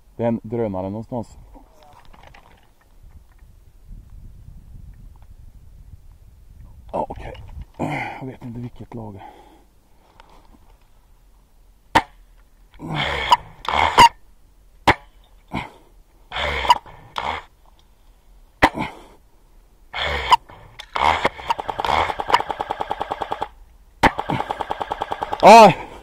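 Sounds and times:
short rasping noises: 12.8s - 14.2s, 14.9s - 17.6s, 19.9s - 25.8s
airsoft gun single shots: 20.9s - 25.5s
rapid automatic airsoft fire: 21.0s - 25.7s.

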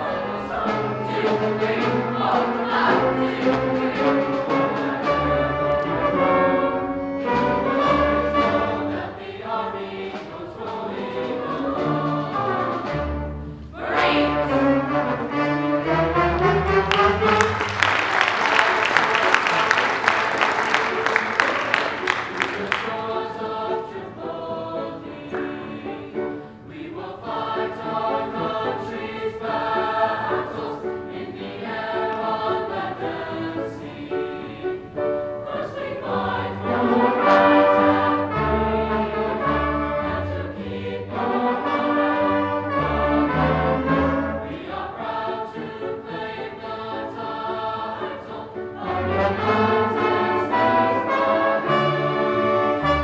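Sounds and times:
band accompaniment: 0.0s - 24.5s, 35.5s - 45.2s, 48.8s - 53.0s
choir singing: 0.0s - 53.0s
applause: 16.8s - 23.0s.

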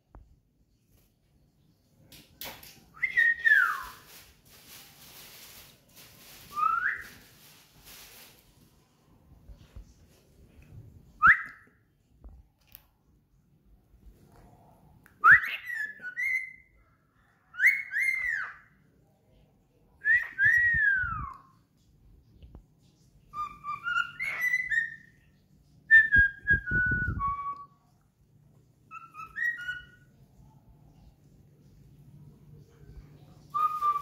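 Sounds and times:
low muffled noise: 0.0s - 34.0s
cockatiel whistling: 2.9s - 4.0s, 6.5s - 7.3s, 11.2s - 11.7s, 15.2s - 16.7s, 17.5s - 18.6s, 23.3s - 25.2s, 28.9s - 30.1s, 33.5s - 34.0s.

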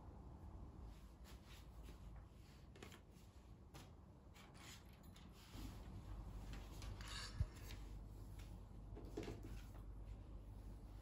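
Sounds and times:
paper rustling and light clicks: 1.3s - 9.9s.

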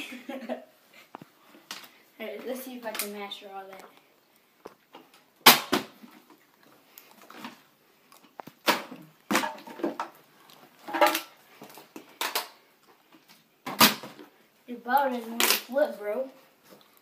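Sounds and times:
plastic bottles thudding on surface: 8.4s - 10.1s, 13.6s - 14.2s.

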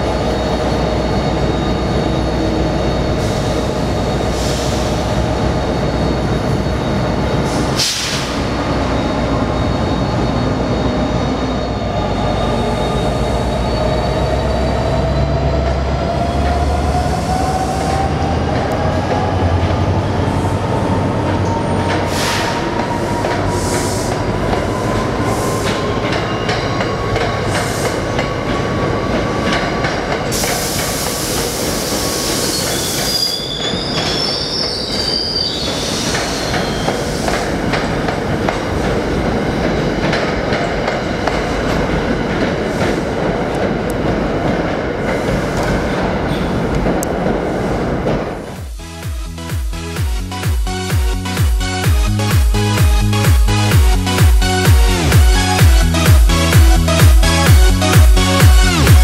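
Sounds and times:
high-pitched wheel squeal: 0.0s - 18.3s, 31.8s - 37.3s
diesel train rumbling: 0.0s - 59.0s
train whine: 0.0s - 59.0s.

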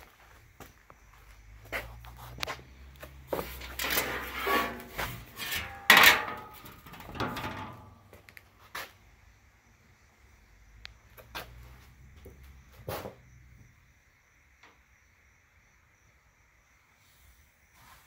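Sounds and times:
scrapes and knocks: 2.2s - 8.2s
sharp clatter: 3.6s - 8.0s.

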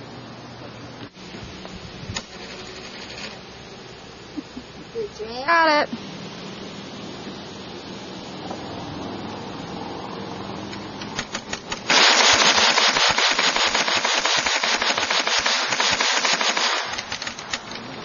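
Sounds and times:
gatling gun firing rapid shots: 11.2s - 17.7s.

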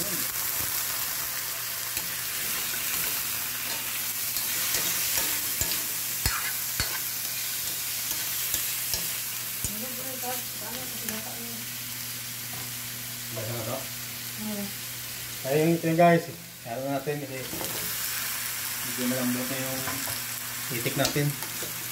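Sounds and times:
meat sizzling in oil: 0.0s - 21.9s
metal spatula scraping wok: 2.0s - 9.2s
spatula clacking on wok: 4.4s - 9.8s.

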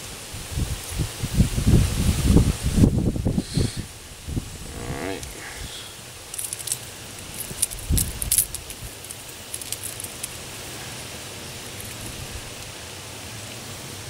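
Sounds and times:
faint steady hiss: 0.0s - 14.0s
metal fishing hooks clinking: 6.3s - 10.4s.

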